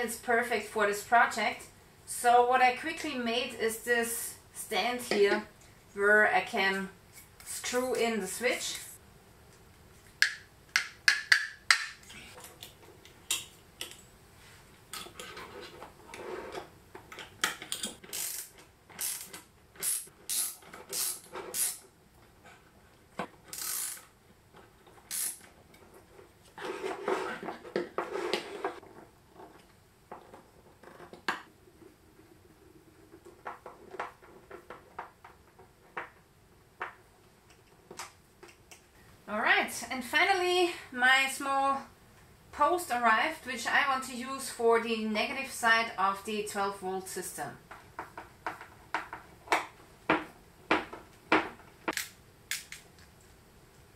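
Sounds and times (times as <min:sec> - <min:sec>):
scraping on wooden board: 0:15.1 - 0:16.7, 0:26.5 - 0:28.9.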